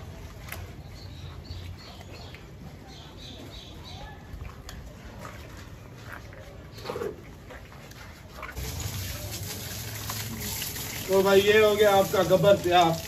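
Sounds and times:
dog being scrubbed with splashes: 8.5s - 13.0s.

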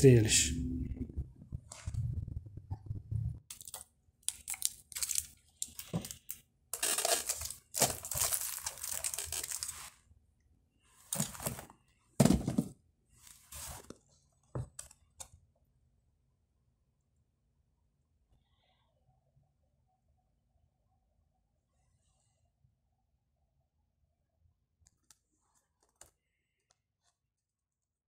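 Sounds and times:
rustling and crinkling: 3.5s - 10.0s, 10.9s - 15.0s.

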